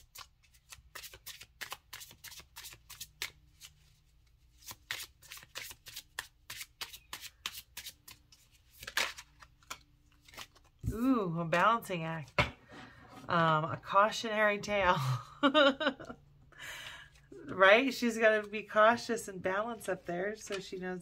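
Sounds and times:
cards being shuffled: 0.0s - 11.6s.

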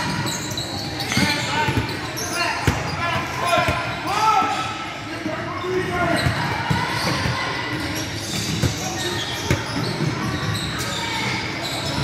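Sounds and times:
basketball bouncing on court: 6.1s - 10.7s.

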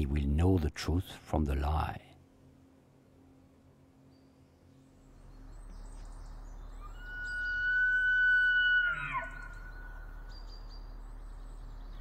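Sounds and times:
long high animal call: 6.8s - 10.2s.

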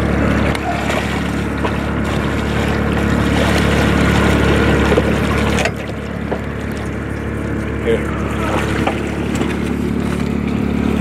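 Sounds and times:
fish splashing in water: 0.0s - 11.0s
low motor hum: 0.0s - 11.0s.

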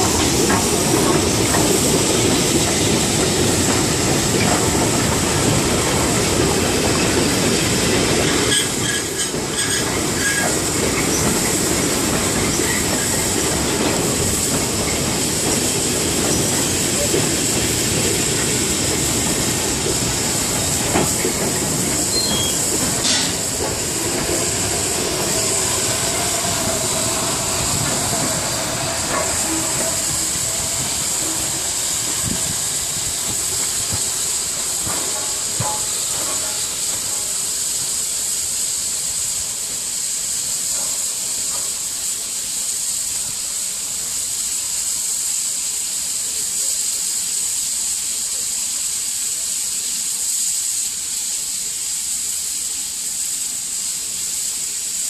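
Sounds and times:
steam engine hissing: 0.0s - 55.0s
train rumbling over jointed track: 0.0s - 55.0s
faint wheel squeal: 8.5s - 10.6s, 22.1s - 22.7s.

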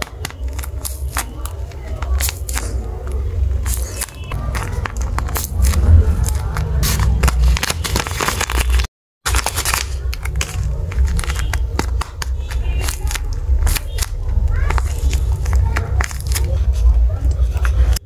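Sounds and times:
paper crinkling: 0.0s - 18.0s
low rumble: 4.6s - 7.7s, 10.1s - 18.0s.

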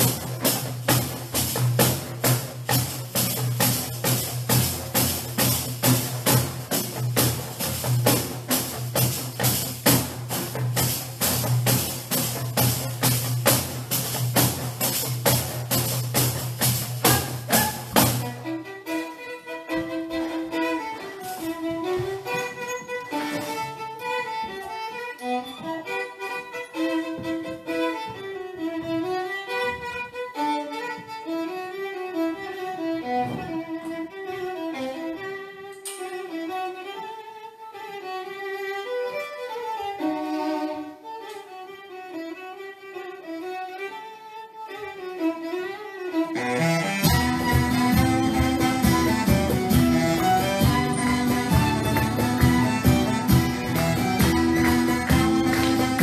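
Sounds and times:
band playing: 0.0s - 36.0s, 46.2s - 56.0s
slow violin melody: 17.0s - 56.0s.

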